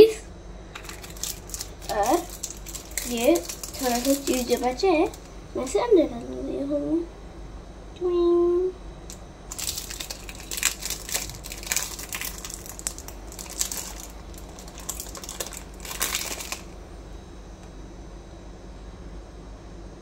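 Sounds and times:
crinkling and crunching rustles: 0.7s - 5.3s, 9.5s - 16.8s.

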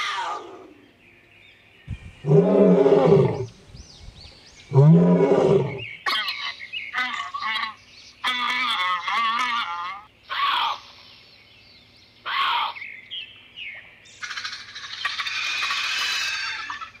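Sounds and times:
high wavering animal calls: 2.0s - 3.6s, 4.6s - 10.9s, 14.2s - 17.0s
lion roaring: 2.2s - 3.6s, 4.7s - 5.9s.

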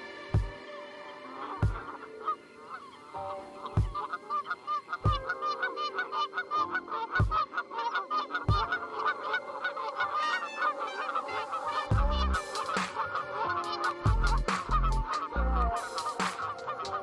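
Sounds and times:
geese honking: 0.0s - 17.0s
dull low thumps: 11.9s - 12.4s, 14.1s - 15.0s.

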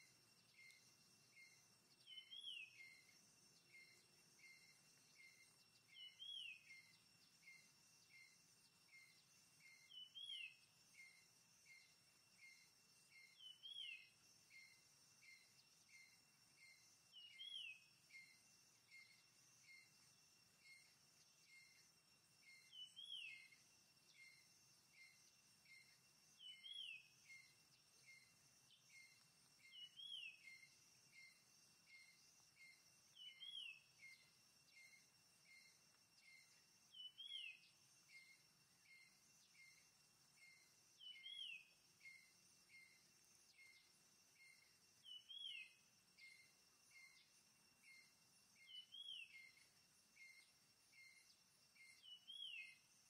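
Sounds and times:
insect drone: 0.0s - 53.0s
bird whistle and chirps: 2.0s - 3.0s, 5.3s - 7.0s, 9.8s - 10.6s, 13.2s - 14.1s, 17.1s - 17.8s, 22.7s - 23.6s, 26.4s - 27.4s, 29.7s - 30.6s, 33.2s - 34.2s, 36.9s - 37.7s, 41.0s - 41.7s, 45.0s - 45.8s, 48.6s - 49.6s, 51.9s - 52.8s.

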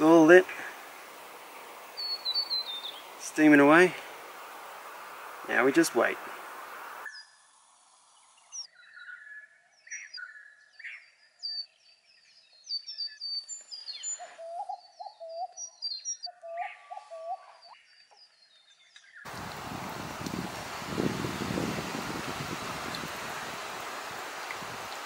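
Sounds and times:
birds chirping and trilling: 0.0s - 7.5s, 8.1s - 20.0s.

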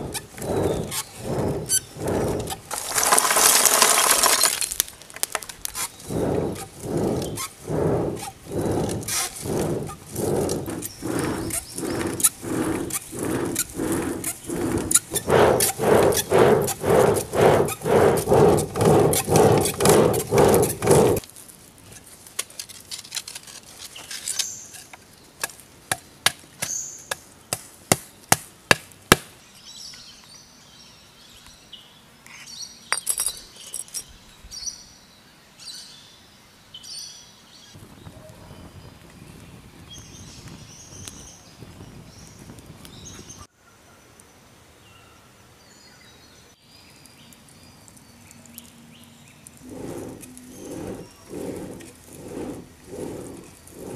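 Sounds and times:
bellows pumping air: 0.0s - 4.1s, 6.1s - 21.2s, 49.7s - 53.9s.

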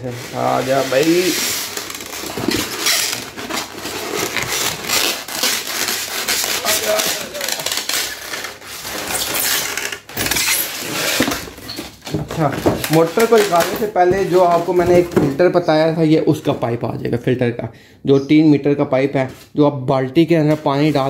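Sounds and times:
cardboard and foam rustling: 0.0s - 15.9s.

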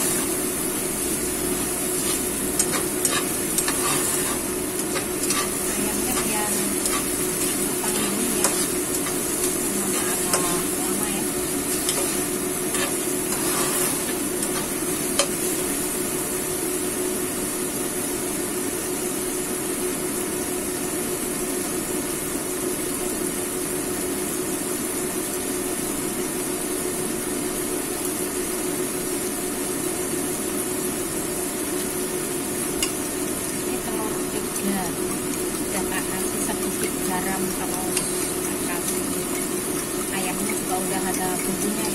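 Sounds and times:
steady low hum: 0.0s - 16.6s, 32.1s - 41.9s
chicken sizzling in oil: 0.0s - 41.9s
metal spatula scraping a pan: 1.9s - 15.5s.

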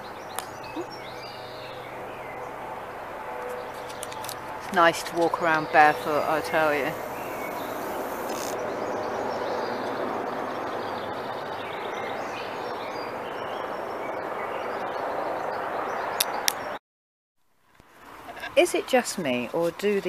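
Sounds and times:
outdoor background noise: 0.0s - 16.8s, 17.4s - 20.0s
small birds chirping faintly: 0.0s - 16.8s
sharp clicks: 8.1s - 8.6s.

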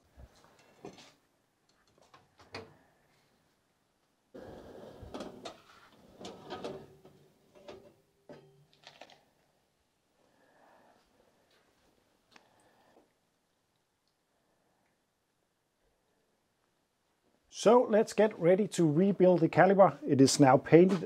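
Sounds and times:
metal rack rattling and clanking: 5.2s - 8.5s.

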